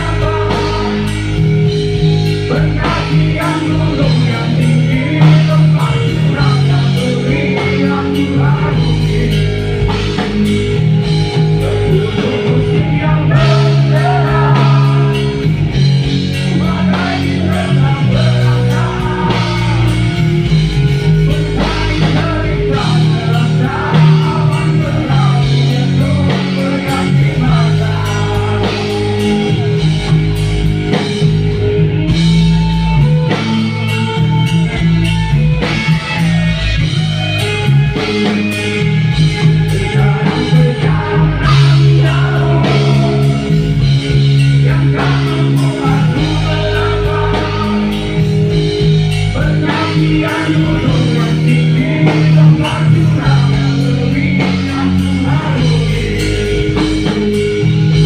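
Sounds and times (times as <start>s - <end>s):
person singing: 0.0s - 1.5s, 2.4s - 10.4s, 11.5s - 30.2s, 39.2s - 57.2s
distorted electric guitar: 0.0s - 58.0s
drum kit: 0.0s - 58.0s.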